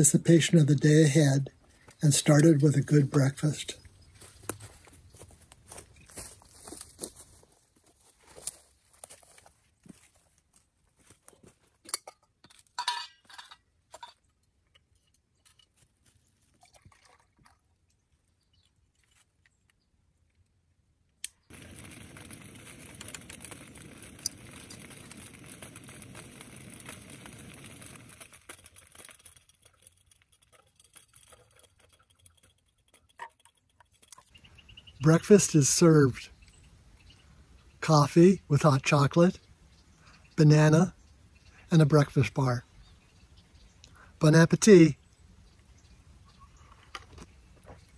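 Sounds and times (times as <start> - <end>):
metal cookware clinking: 12.8 - 14.2.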